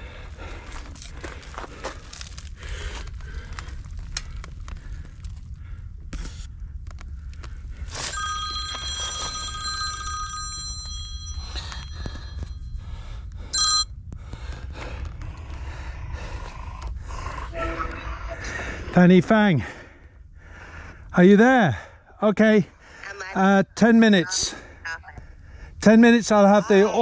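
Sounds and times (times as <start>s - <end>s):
steady low rumble: 0.0s - 27.0s
phone ringtone: 8.0s - 12.8s, 13.6s - 13.9s.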